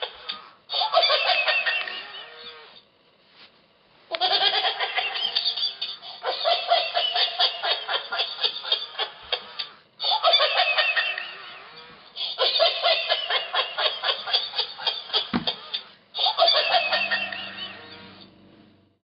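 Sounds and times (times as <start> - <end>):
toy playing recorded laughter: 0.0 - 2.8, 4.1 - 18.3.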